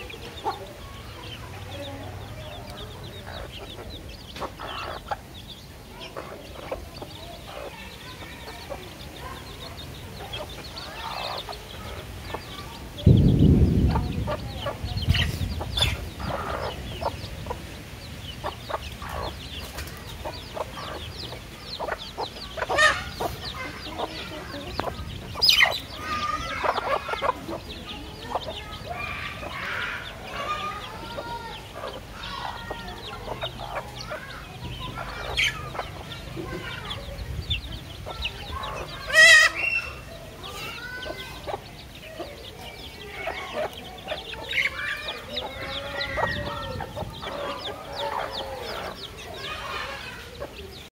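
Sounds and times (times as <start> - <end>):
chicks peeping: 0.0 - 50.9
hens clucking: 0.0 - 50.9.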